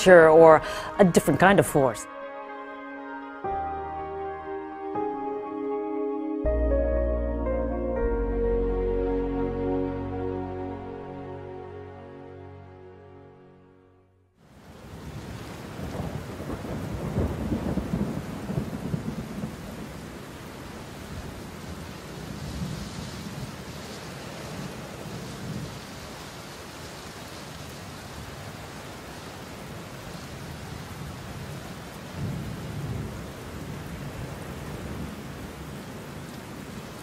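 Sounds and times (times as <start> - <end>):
steady rain: 14.4 - 37.0
rolling thunder: 14.9 - 23.7.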